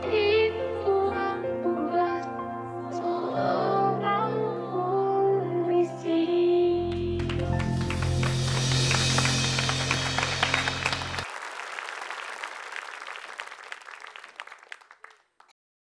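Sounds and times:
music with low bass: 7.0s - 11.2s
applause: 7.2s - 15.6s.

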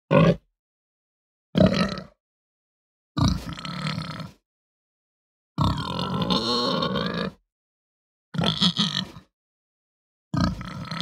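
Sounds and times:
pig grunting: 0.1s - 0.4s, 1.6s - 2.2s, 3.2s - 4.4s, 5.6s - 7.4s, 8.4s - 9.3s, 10.3s - 11.0s.

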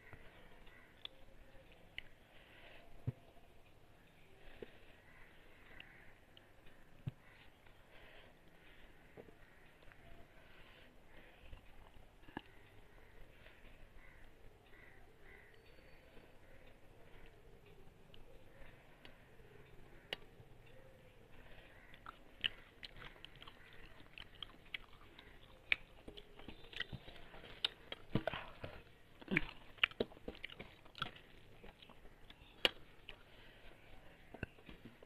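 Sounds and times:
fingers mixing food on metal plate: 19.9s - 35.0s
chewing clicks and smacks: 21.9s - 33.3s.

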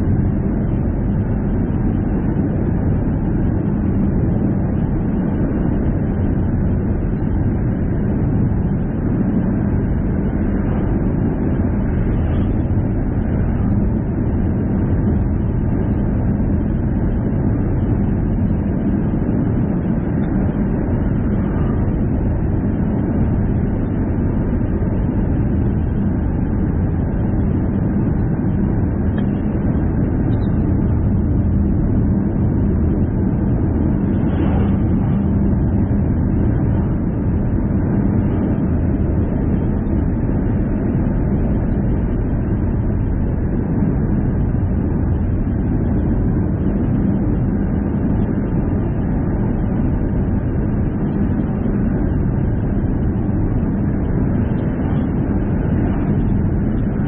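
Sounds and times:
car driving on highway: 32.7s - 37.2s.

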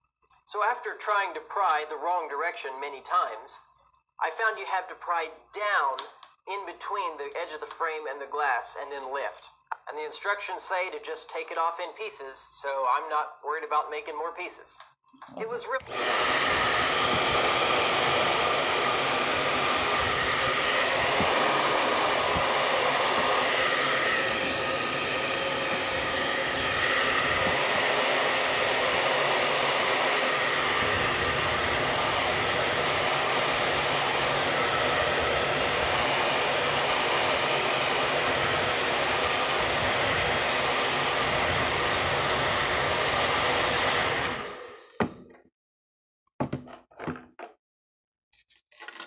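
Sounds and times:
hair dryer running: 15.8s - 45.2s.

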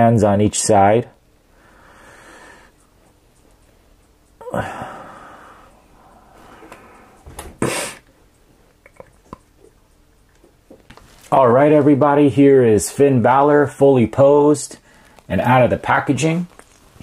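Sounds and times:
loud breath: 1.5s - 2.8s, 4.4s - 8.0s
plastic figure rustling: 10.8s - 11.4s, 16.3s - 17.0s.

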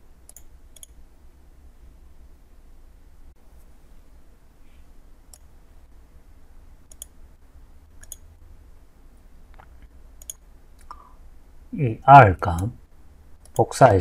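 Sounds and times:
low electrical hum: 0.0s - 14.0s
computer mouse clicks: 0.2s - 1.0s, 5.3s - 5.5s, 6.9s - 7.2s, 8.0s - 8.3s, 9.5s - 11.0s, 13.4s - 13.7s.

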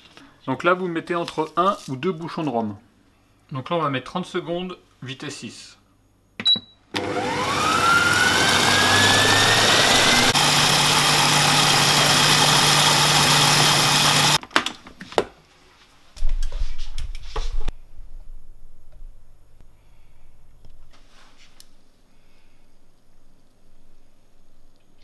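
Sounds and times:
food processor motor whining: 7.0s - 14.4s.

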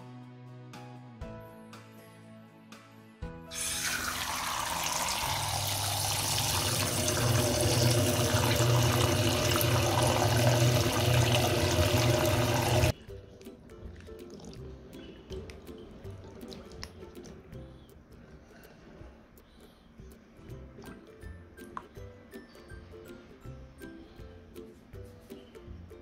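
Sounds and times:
tap running into bowl of water: 3.5s - 12.9s.

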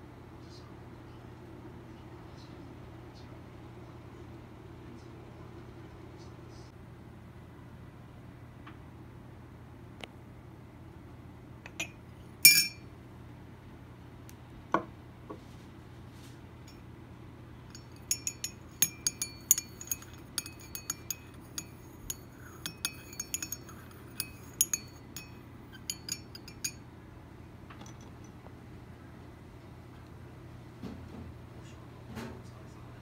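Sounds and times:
ceramic lid clinking on mug: 11.7s - 12.8s, 17.8s - 26.8s
spoon clinking in mug: 11.7s - 12.8s, 17.7s - 26.8s, 27.8s - 28.4s.

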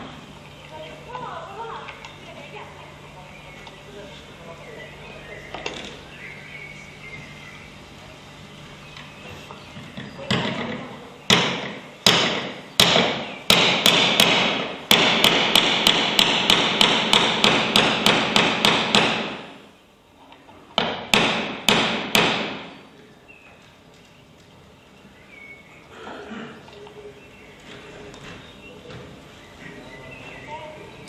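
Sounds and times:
hammer blows ringing: 11.3s - 19.6s, 20.8s - 22.8s.

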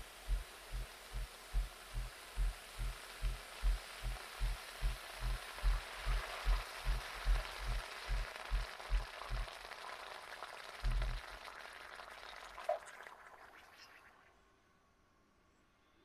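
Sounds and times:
water sizzling on a hot pan: 0.0s - 14.3s
low thumping: 10.9s - 11.2s.

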